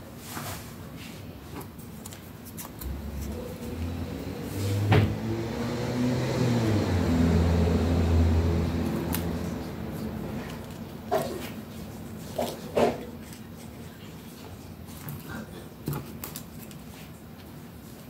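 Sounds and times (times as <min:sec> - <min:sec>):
vehicle engine humming: 0:02.8 - 0:11.2.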